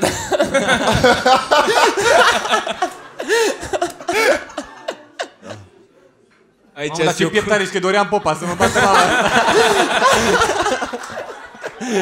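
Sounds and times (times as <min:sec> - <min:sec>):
men laughing together: 0:00.0 - 0:05.7, 0:08.5 - 0:12.0.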